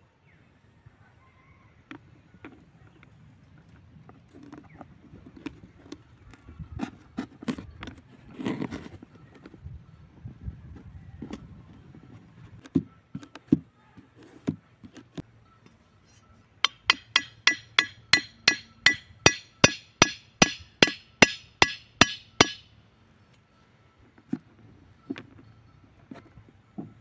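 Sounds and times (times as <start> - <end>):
scattered knocks: 16.7 - 22.6
machete striking wooden stake: 16.7 - 22.7.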